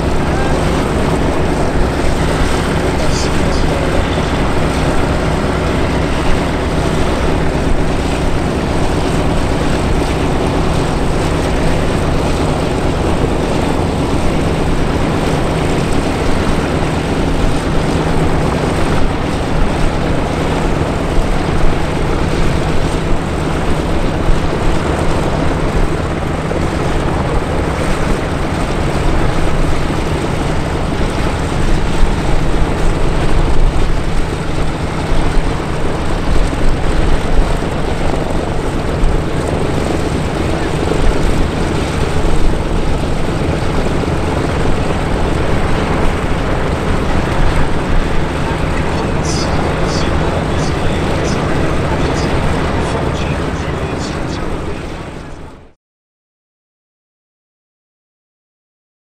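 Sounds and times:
helicopter rotor and turbine noise: 0.0s - 55.8s.

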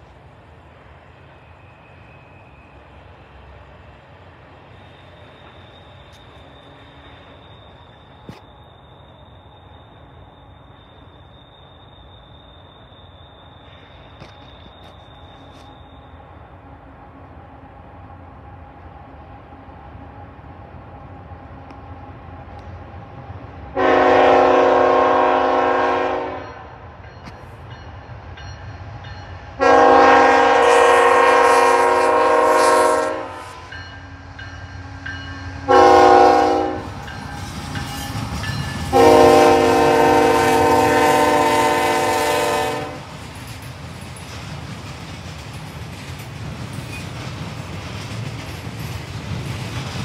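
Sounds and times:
train cars clickety-clack: 0.0s - 12.9s, 13.5s - 17.4s, 18.7s - 50.0s
train rumbling: 0.0s - 50.0s
locomotive air horn blasts: 23.8s - 26.8s, 29.6s - 33.7s, 35.6s - 37.0s, 38.9s - 43.1s.

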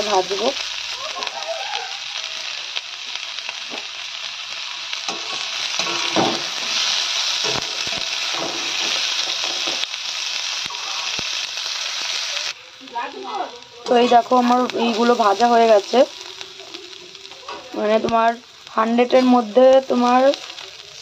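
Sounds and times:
vegetables sizzling in oil: 0.0s - 21.0s
metal spatula scraping pan: 5.1s - 9.8s.

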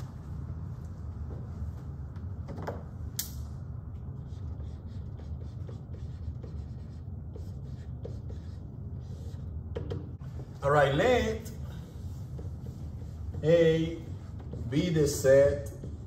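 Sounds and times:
low room hum: 0.0s - 16.0s
marker writing on whiteboard: 4.0s - 10.6s, 11.4s - 16.0s.

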